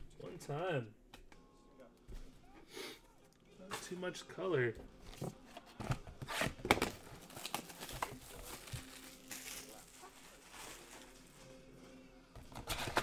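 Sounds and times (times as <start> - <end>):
wrappers crinkling and tearing: 7.0 - 11.6.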